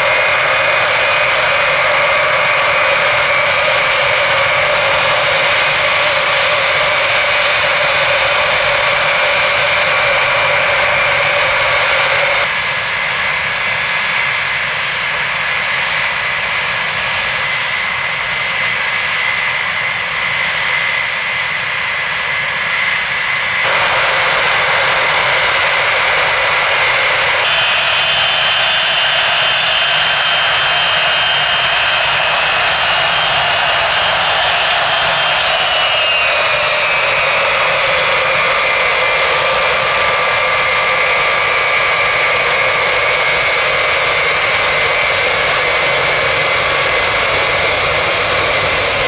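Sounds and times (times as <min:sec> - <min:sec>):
aircraft engines whining: 0:00.0 - 0:49.0.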